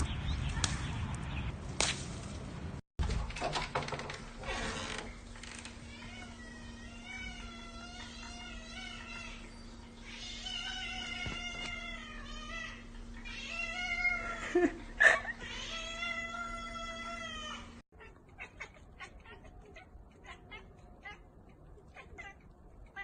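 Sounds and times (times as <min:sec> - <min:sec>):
steady low hum: 0:04.1 - 0:23.0
cat meowing: 0:05.9 - 0:14.4, 0:15.4 - 0:23.0.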